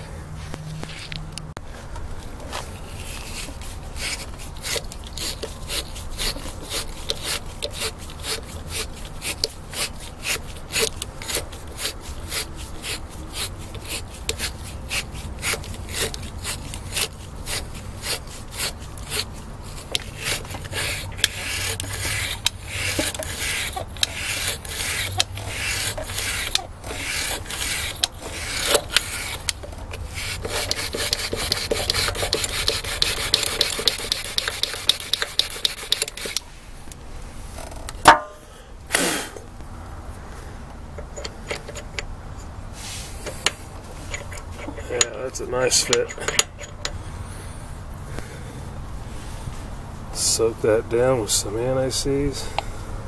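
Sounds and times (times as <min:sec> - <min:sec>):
drill wire brush scraping rust: 0:02.4 - 0:38.3, 0:40.9 - 0:47.6, 0:50.2 - 0:52.6
sharp knock: 0:38.0 - 0:38.5.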